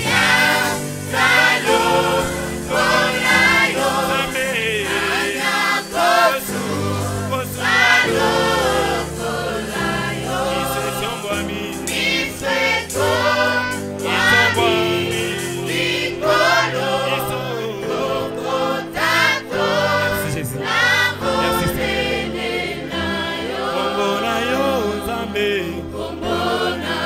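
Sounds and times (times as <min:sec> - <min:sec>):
choir singing gospel: 0:00.0 - 0:27.0
keyboard accompaniment: 0:00.0 - 0:27.0.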